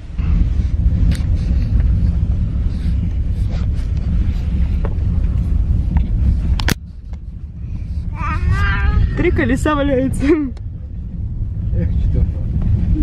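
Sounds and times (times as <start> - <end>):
car driving rumble: 0.0 - 13.0
wind buffeting microphone: 0.0 - 13.0.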